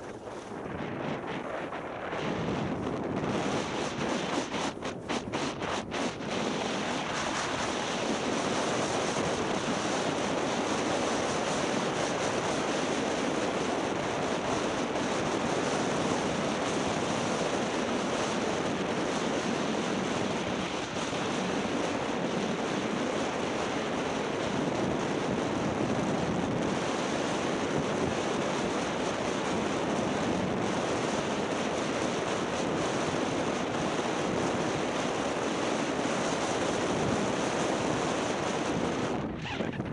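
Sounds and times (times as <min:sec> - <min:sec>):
skis sliding over packed snow: 0:00.0 - 0:23.6
wind buffeting microphone: 0:00.0 - 0:39.9.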